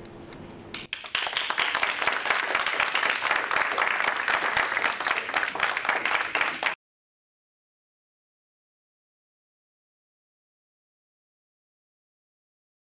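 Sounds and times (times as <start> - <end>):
audience applauding: 0.9 - 6.8.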